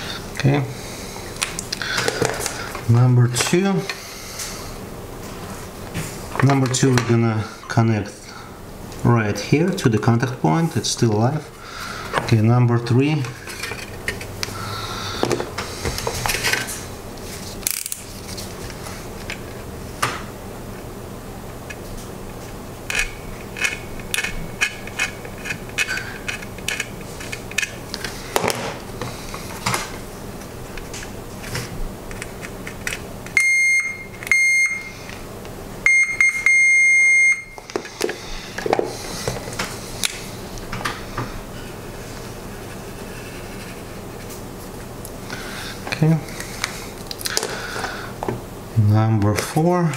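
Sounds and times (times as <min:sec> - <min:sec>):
multimeter beeping: 0:33.4 - 0:34.9, 0:35.8 - 0:37.6.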